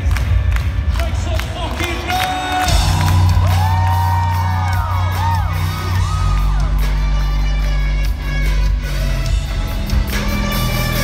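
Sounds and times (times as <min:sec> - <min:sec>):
live rock band: 0:00.0 - 0:11.0
crowd whooping: 0:02.5 - 0:07.4
heavy bass notes: 0:02.5 - 0:11.0.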